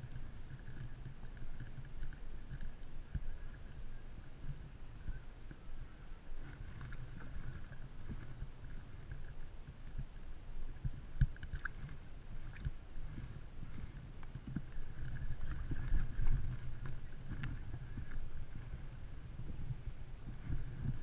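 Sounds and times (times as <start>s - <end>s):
wind and water rumble: 0.0s - 21.0s.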